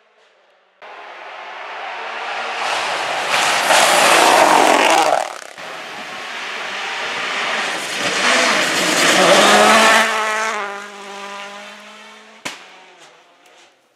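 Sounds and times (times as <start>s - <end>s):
rally car engine passing: 0.8s - 13.8s
tyres on loose gravel: 3.2s - 5.6s.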